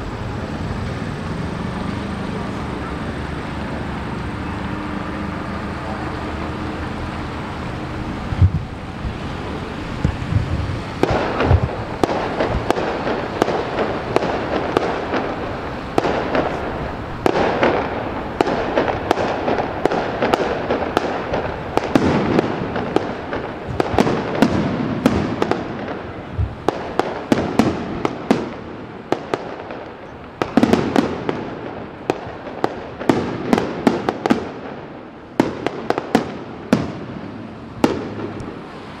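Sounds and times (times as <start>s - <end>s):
firework crackling: 0.0s - 39.0s
firework shells bursting: 8.3s - 39.0s.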